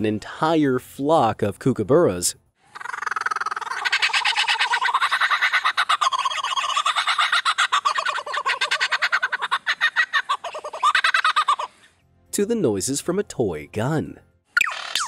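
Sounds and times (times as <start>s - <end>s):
lyrebird mimicking kookaburra laughter: 2.7s - 11.9s.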